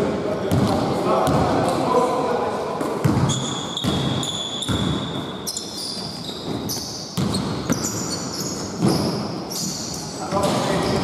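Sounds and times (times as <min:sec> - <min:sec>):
basketball bouncing on wood floor: 0:00.5 - 0:01.6, 0:03.0 - 0:05.3, 0:06.4 - 0:09.1
sneakers squeaking on floor: 0:02.8 - 0:11.0.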